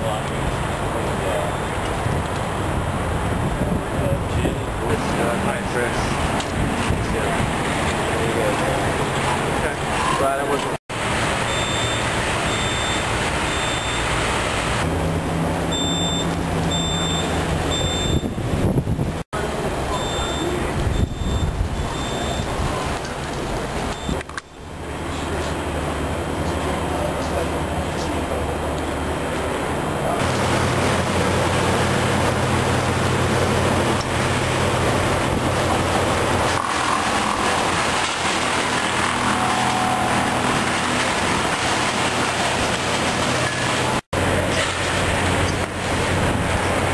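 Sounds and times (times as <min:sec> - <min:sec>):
engine and street noise: 0:00.0 - 0:46.9
short high electronic beeps: 0:11.5 - 0:14.1, 0:15.7 - 0:18.4, 0:19.9 - 0:22.5, 0:24.0 - 0:24.2.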